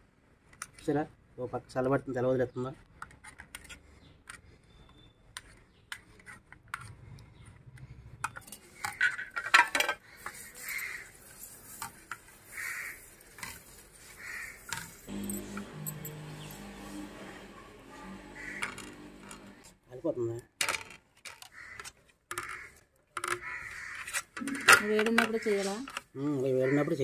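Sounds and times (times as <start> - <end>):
metal utensil scraping metal plate: 14.7 - 19.6.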